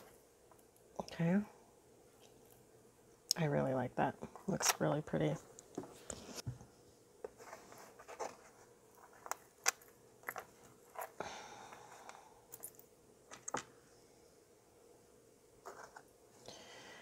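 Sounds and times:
metal jewelry pieces clinking: 12.5 - 13.4.

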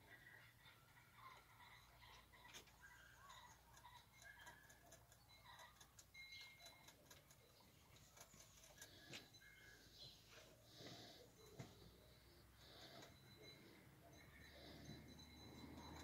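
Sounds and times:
soft ticks and clicks: 2.2 - 10.1.

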